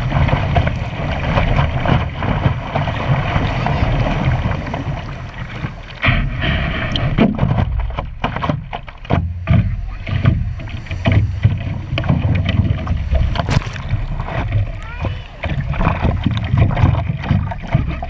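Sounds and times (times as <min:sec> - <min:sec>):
small waves slapping a board: 0:00.0 - 0:18.0
whitewater rushing: 0:09.9 - 0:16.8.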